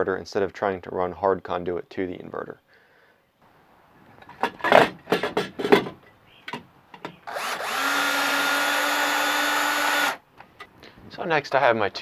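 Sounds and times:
handling knocks and clicks: 0:04.2 - 0:07.2
cordless drill whining: 0:07.2 - 0:10.2.

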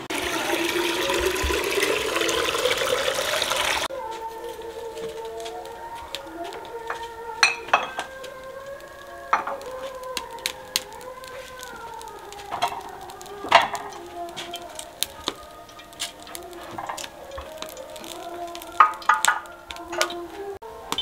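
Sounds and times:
wavering tone: 0:03.9 - 0:21.0
clay pots knocking and clinking: 0:06.9 - 0:08.3, 0:09.3 - 0:09.7, 0:12.5 - 0:14.6, 0:18.8 - 0:20.2.

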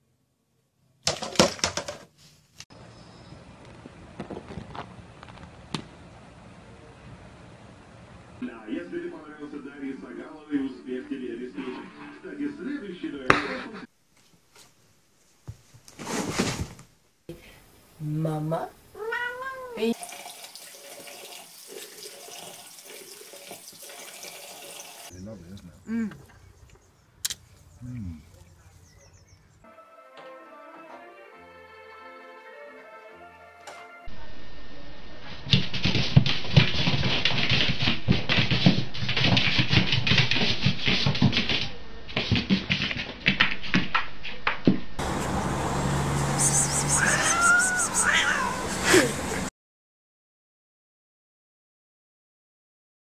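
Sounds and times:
cat meowing: 0:19.0 - 0:20.0, 0:46.6 - 0:48.6
tap water running into sink: 0:20.0 - 0:25.1
cat thumping and scuffling on carpet: 0:35.5 - 0:44.0.

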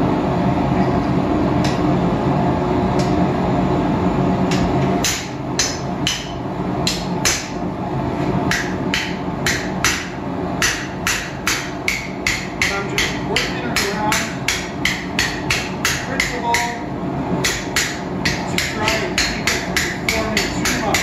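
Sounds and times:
hammer striking steel punch: 0:04.5 - 0:07.6, 0:08.5 - 0:16.8, 0:17.4 - 0:21.0.

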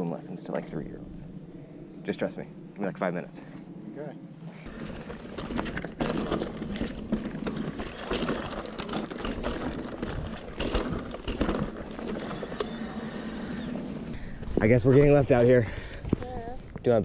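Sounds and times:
knocks and rattles: 0:04.7 - 0:12.7.

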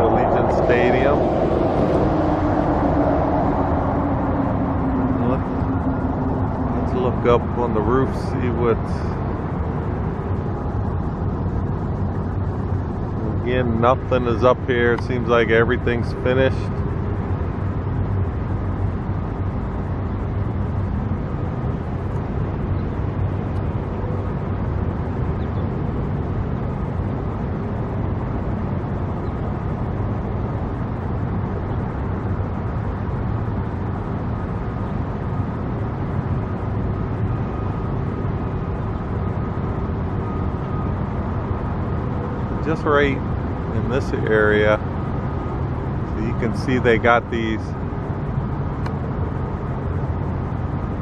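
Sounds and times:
motor vehicles rumbling: 0:00.0 - 0:51.0.

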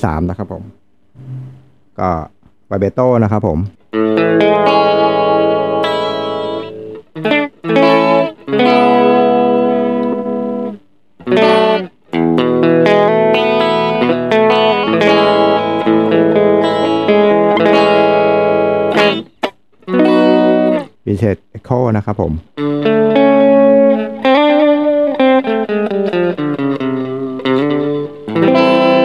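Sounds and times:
electric guitar with vibrato: 0:01.2 - 0:01.9, 0:03.9 - 0:21.0, 0:22.5 - 0:29.0.

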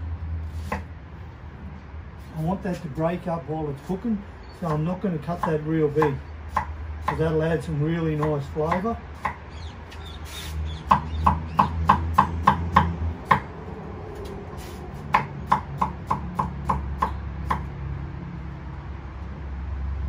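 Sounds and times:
knife chopping on wooden board: 0:04.7 - 0:07.4, 0:08.1 - 0:09.4, 0:10.8 - 0:13.5, 0:15.0 - 0:17.7.

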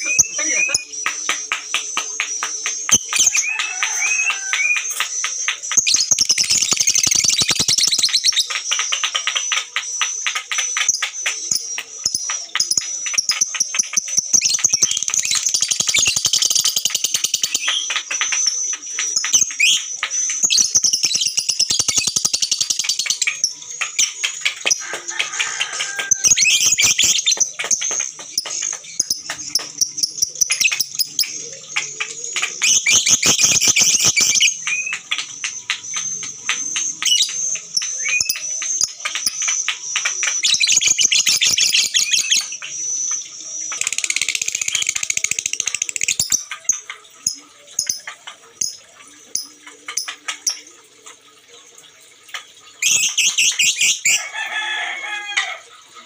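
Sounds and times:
lovebirds chattering trill: 0:00.0 - 0:06.6.

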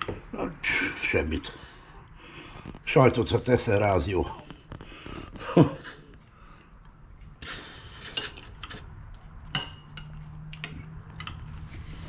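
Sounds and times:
spoon scraping in a bowl: 0:07.5 - 0:08.9
spoon clinking against bowl: 0:09.5 - 0:11.5.

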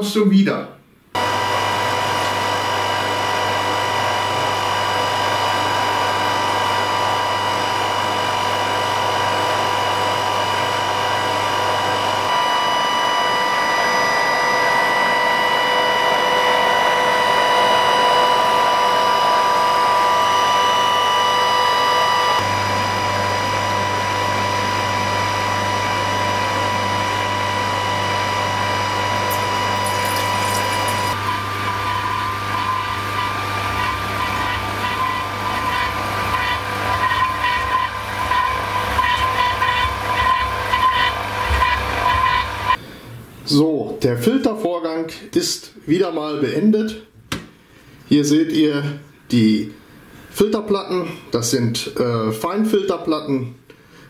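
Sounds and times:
electric pump motor hum: 0:01.2 - 0:42.8.

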